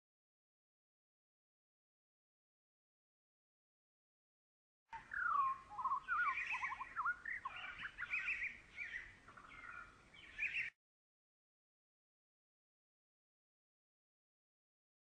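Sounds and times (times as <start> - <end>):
songbird singing: 4.9 - 10.8.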